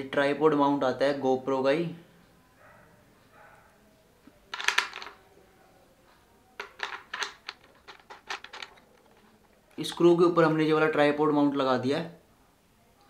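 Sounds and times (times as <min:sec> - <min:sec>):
plastic adapter clicking and scraping: 0:06.6 - 0:10.1.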